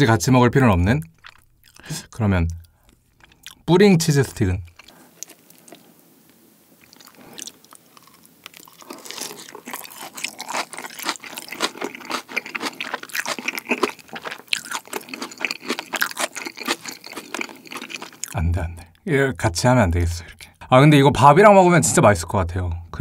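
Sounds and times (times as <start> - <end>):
crunching and chewing: 1.1 - 3.7, 4.6 - 6.0, 6.8 - 18.4.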